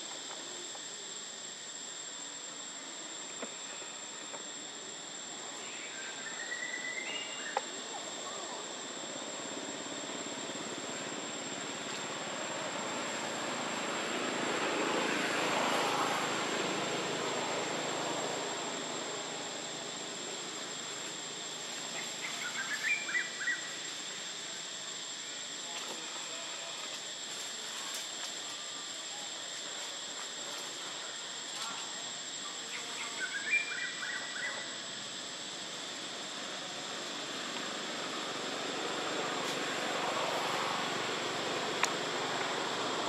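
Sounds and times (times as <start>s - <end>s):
high insect drone: 0.0s - 43.0s
broad rushing noise: 35.3s - 43.0s.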